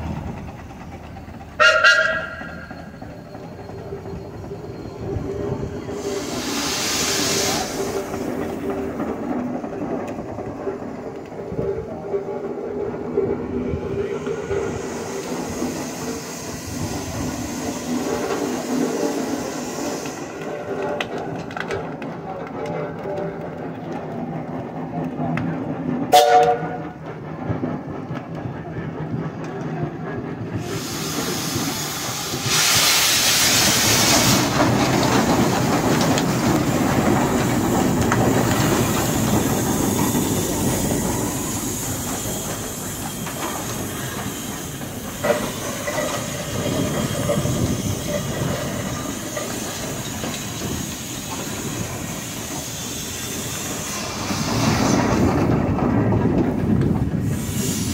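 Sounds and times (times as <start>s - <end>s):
steam traction engine running: 0.0s - 57.9s
loud steam hissing: 2.5s - 9.9s, 11.4s - 20.8s, 30.3s - 57.9s.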